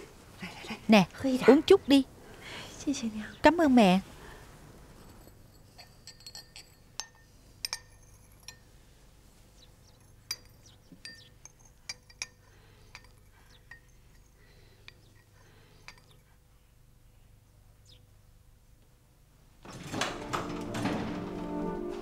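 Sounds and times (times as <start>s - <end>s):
porcelain cup lid clinking: 5.0s - 8.6s, 10.0s - 14.3s.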